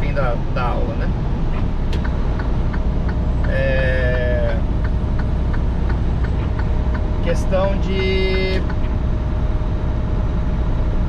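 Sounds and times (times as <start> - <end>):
engine and road rumble: 0.0 - 11.0
light ticking: 4.5 - 7.2.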